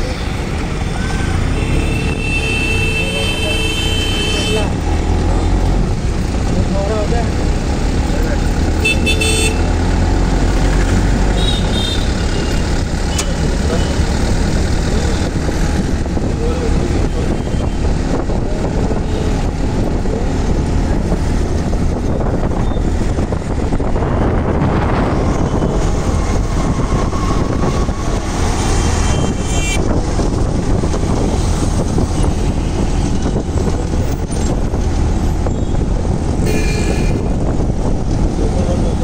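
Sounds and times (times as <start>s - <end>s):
street traffic: 0.0s - 39.0s
wind buffeting microphone: 12.6s - 39.0s.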